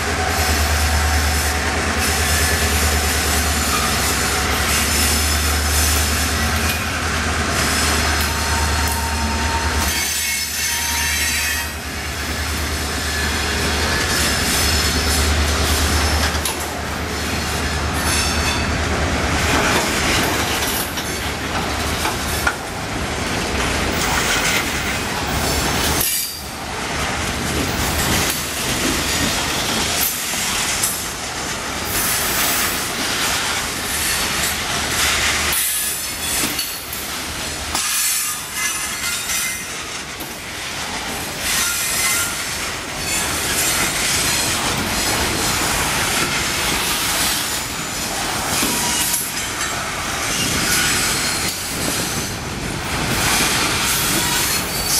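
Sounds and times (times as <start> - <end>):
train wheels on rails: 0.0 - 54.9
high wheel squeal: 7.7 - 11.8.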